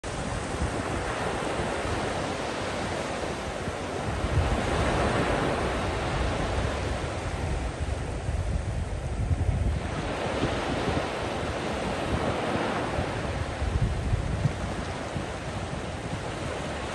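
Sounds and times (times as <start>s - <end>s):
waves breaking on sand: 0.0s - 16.9s
wind buffeting microphone: 0.0s - 16.9s.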